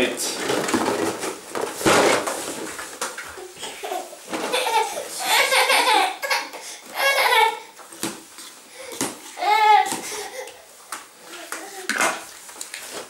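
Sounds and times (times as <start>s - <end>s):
child laughing and babbling: 3.4s - 7.8s, 9.4s - 10.7s, 11.3s - 12.0s.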